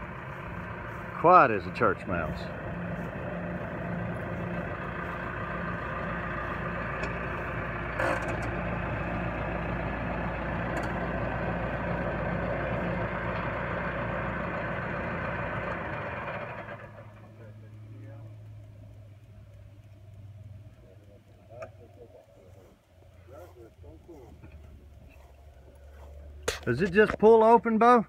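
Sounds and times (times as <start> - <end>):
baler machine hum: 0.0 - 28.0
tractor engine idling: 0.0 - 28.0.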